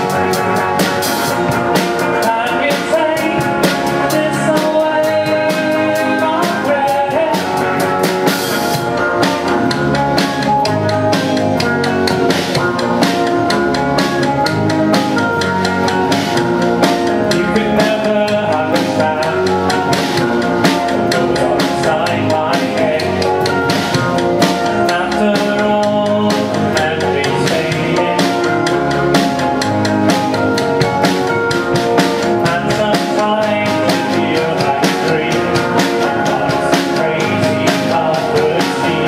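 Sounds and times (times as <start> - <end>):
drum kit beat: 0.0 - 39.0
person singing: 0.0 - 39.0
strummed guitars: 0.0 - 39.0.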